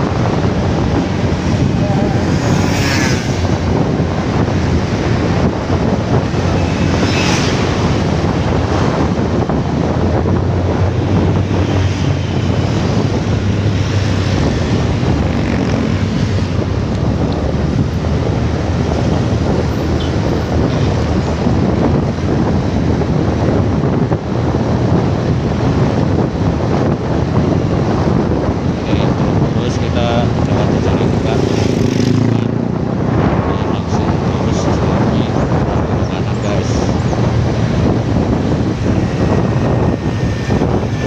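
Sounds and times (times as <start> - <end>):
motorcycle engine: 0.0 - 41.0
road noise: 0.0 - 41.0
wind buffeting microphone: 0.0 - 41.0.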